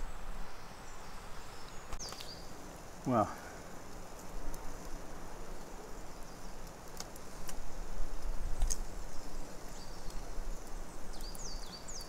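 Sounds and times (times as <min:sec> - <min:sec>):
small bird chirping: 0:00.0 - 0:02.6, 0:08.5 - 0:12.0.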